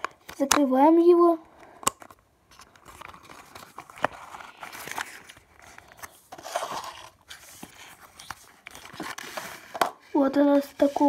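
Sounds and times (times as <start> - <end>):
card scraping and rustling: 2.0 - 9.9.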